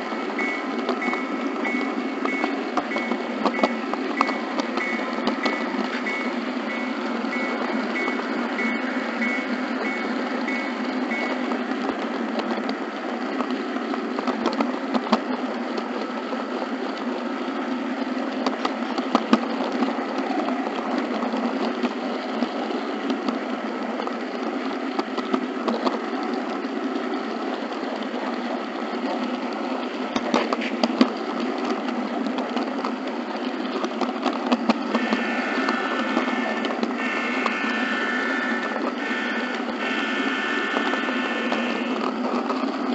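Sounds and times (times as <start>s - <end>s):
chord of steady tones: 0.0s - 11.6s
model train motor whirring: 0.0s - 42.9s
wheels clicking over rail joints: 0.0s - 42.9s.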